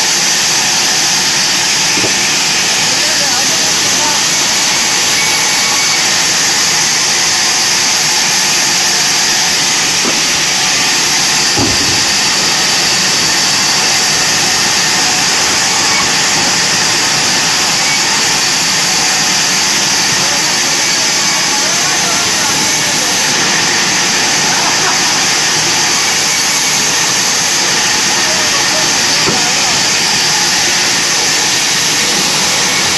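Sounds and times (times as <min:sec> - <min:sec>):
band saw cutting timber: 0:00.0 - 0:32.9
dull knock: 0:11.6 - 0:12.0.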